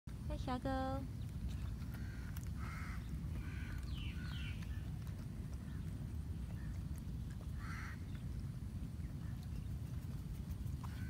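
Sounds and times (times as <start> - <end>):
low outdoor rumble: 0.1 - 11.0
bird chirps: 2.8 - 4.9.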